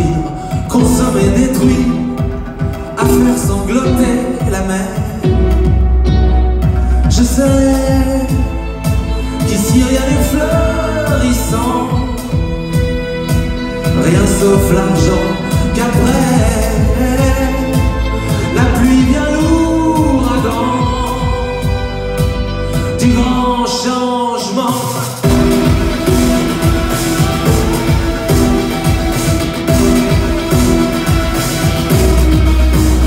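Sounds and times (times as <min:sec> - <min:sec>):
guitar: 0:00.0 - 0:33.0
man singing: 0:00.0 - 0:33.0
violin: 0:00.0 - 0:33.0
fast rhythmic pulse: 0:25.0 - 0:33.0.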